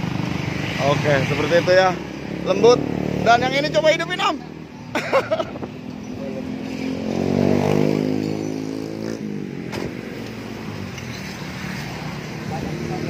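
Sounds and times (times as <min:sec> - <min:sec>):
scooter engine revving: 0:06.0 - 0:10.7.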